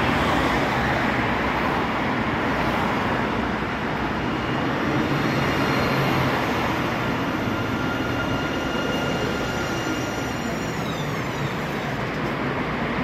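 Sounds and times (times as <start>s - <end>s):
wheels rumbling on rail: 0.0s - 13.0s
tram electric whine: 2.9s - 13.0s.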